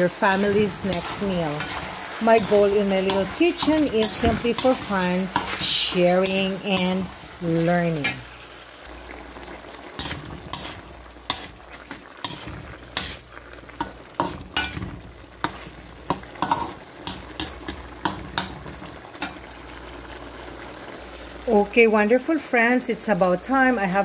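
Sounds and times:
spatula scraping a metal pan: 0.0 - 8.3, 10.0 - 18.5
liquid simmering and sizzling: 0.0 - 24.0.

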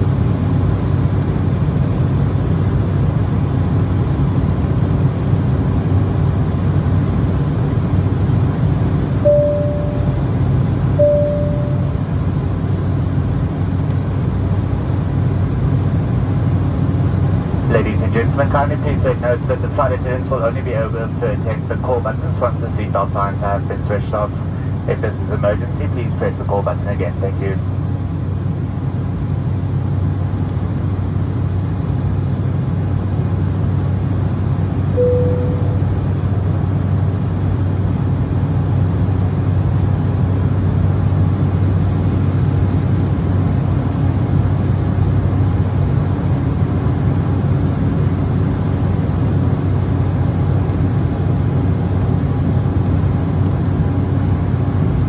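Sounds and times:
airplane cabin engine drone: 0.0 - 55.0
short tone: 9.2 - 12.4, 34.9 - 36.2.

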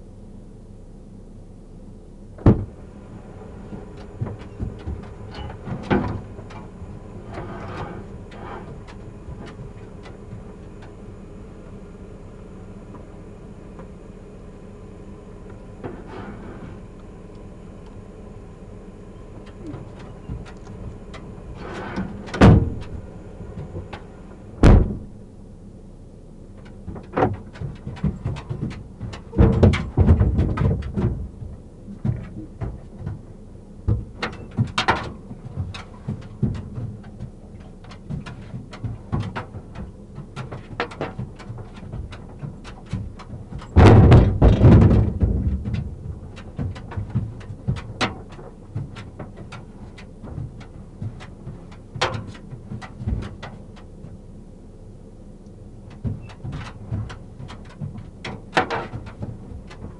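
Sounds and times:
car doors bumped: 2.4 - 2.8, 21.8 - 25.3, 33.9 - 54.2
knocks and clicks inside car: 2.4 - 2.8, 26.6 - 54.3, 55.8 - 59.9.

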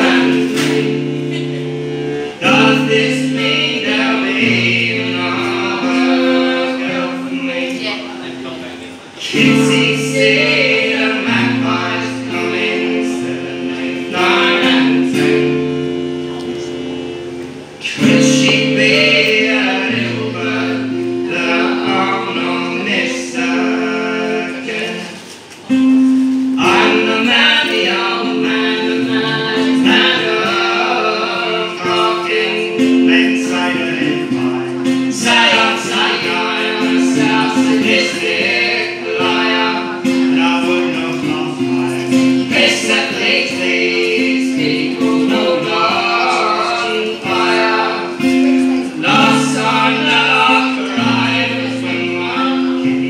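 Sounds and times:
strummed acoustic guitar: 0.0 - 53.0.

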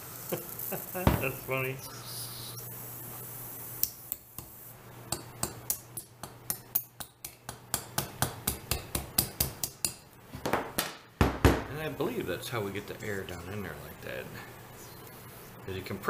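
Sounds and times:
pointed tool tapping hard resin: 5.1 - 10.0.

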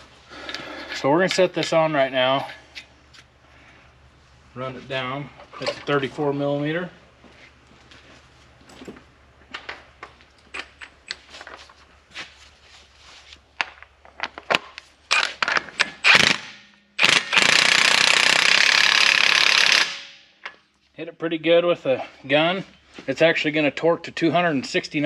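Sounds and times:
impact wrench hammering: 15.2 - 20.6.

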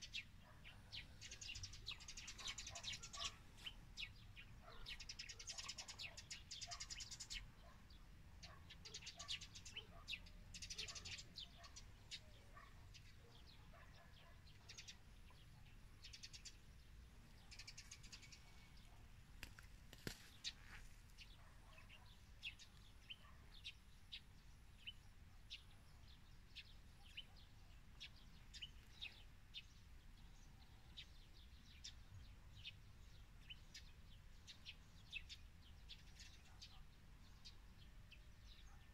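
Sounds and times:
small birds chirping: 0.0 - 38.9.

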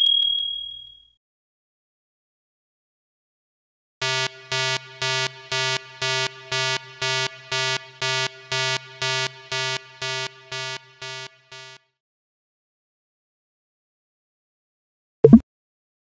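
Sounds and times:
buzzy electronic beeps: 4.0 - 11.8.

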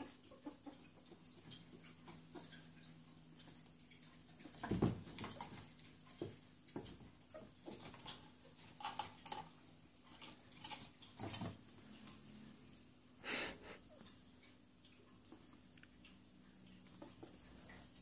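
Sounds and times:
ferrets scratching and tapping: 0.0 - 12.2.

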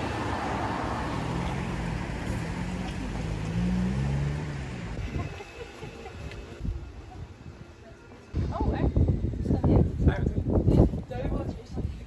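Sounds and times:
car driving past: 0.0 - 5.0.

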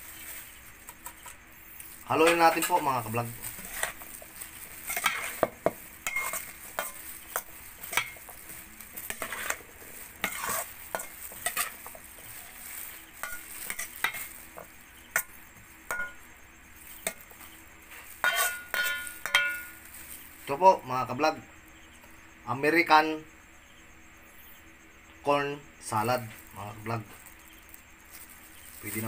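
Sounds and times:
spoon scraping metal bowl: 2.2 - 15.3, 17.0 - 19.8.

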